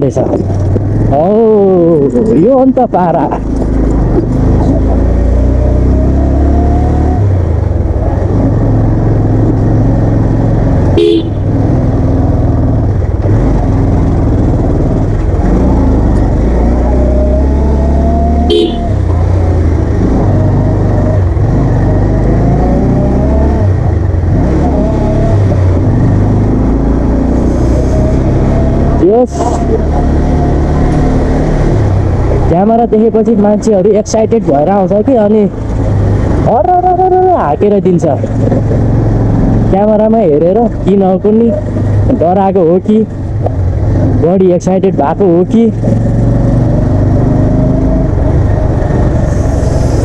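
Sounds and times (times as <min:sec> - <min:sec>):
motorcycle engine running: 0:00.0 - 0:50.0
horn toots: 0:10.9 - 0:11.5, 0:18.4 - 0:19.0.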